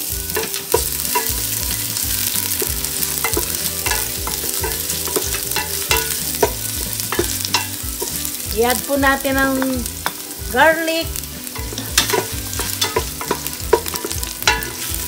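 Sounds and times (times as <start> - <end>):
ginger sizzling in hot oil: 0.0 - 15.0
stirring knocks against pot: 11.6 - 15.0.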